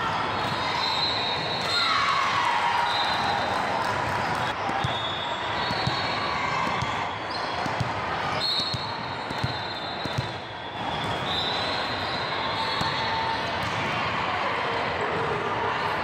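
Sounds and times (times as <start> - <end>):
ball bouncing on court: 4.3 - 5.0, 5.6 - 8.0, 8.7 - 11.3, 12.8 - 14.0.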